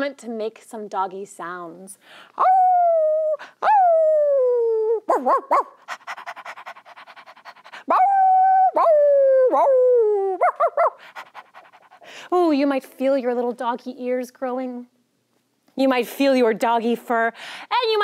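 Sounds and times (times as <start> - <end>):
woman howling like a dog: 2.4 - 5.6, 7.8 - 11.0
woman yipping: 2.4 - 5.8, 7.8 - 11.1
woman panting: 5.8 - 7.9, 10.8 - 12.4, 17.4 - 17.7.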